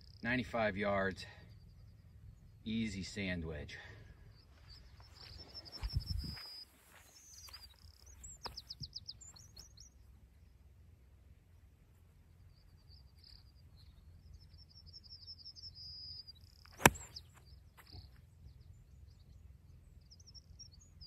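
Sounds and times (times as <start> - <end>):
small birds chirping and trilling: 4.0 - 10.1, 12.3 - 21.0
golf club striking ball: 16.7 - 17.2.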